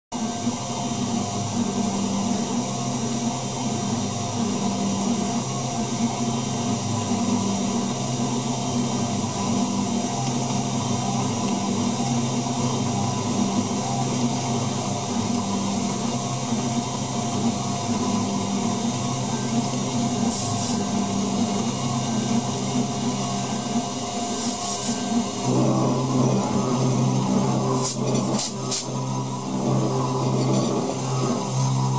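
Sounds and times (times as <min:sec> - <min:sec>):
milling machine whine: 0:00.1 - 0:31.9
low motor hum: 0:25.1 - 0:31.9.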